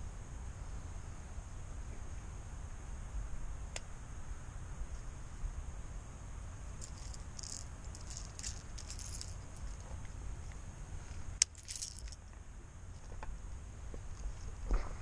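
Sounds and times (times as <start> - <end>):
fishing reel and lure rattling: 6.8 - 10.0, 11.4 - 12.2.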